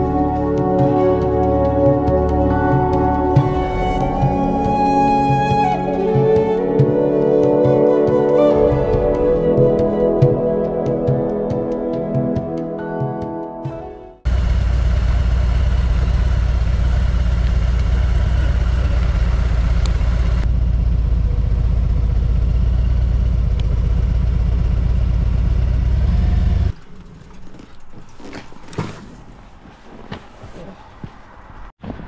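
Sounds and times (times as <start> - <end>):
motorcycle engine idling: 14.2 - 27.6.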